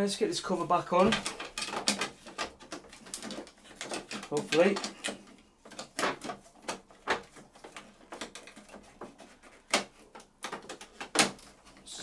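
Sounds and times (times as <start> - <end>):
plastic knocks and clicks: 1.0 - 11.9.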